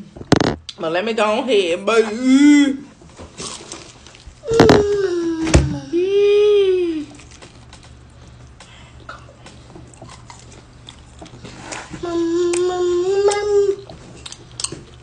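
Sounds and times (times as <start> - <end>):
chewing with small crunches: 7.1 - 15.0.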